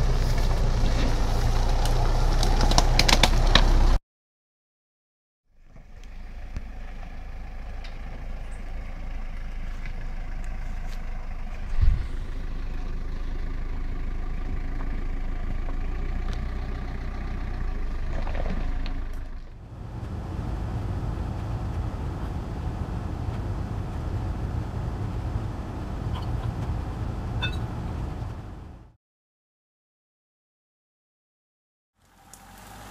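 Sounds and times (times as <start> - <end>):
vehicle engine running: 0.0 - 4.0, 5.6 - 29.0
loud thump: 11.7 - 12.1.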